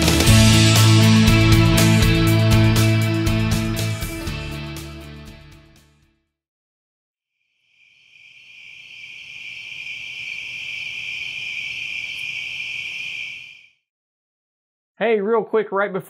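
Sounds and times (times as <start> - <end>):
crickets chirping: 7.5 - 13.7.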